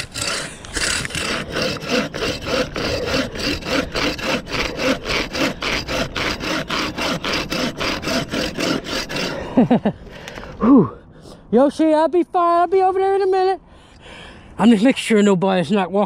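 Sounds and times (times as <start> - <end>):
hand saw cutting wood: 0.0 - 9.8.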